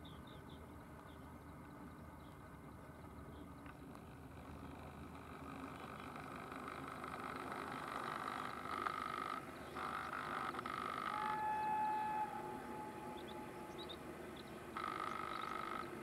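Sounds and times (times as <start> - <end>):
frogs trilling in chorus: 8.1 - 16.0
steady tone: 9.8 - 16.0.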